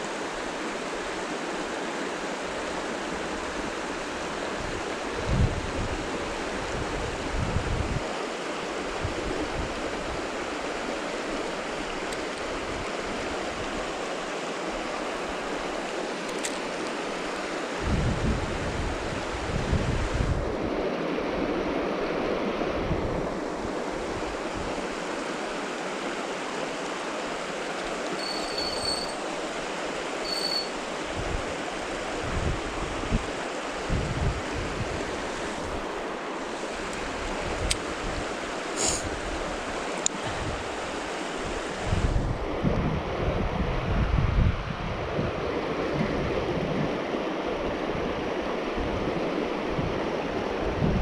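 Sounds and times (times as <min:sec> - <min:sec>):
river water rushing over riffles: 0:00.0 - 0:44.0, 0:44.8 - 0:51.0
wind buffeting microphone: 0:04.6 - 0:08.0, 0:17.8 - 0:21.6, 0:31.1 - 0:35.9, 0:39.0 - 0:47.1, 0:47.8 - 0:51.0
short high tones: 0:28.2 - 0:29.2, 0:30.2 - 0:30.8.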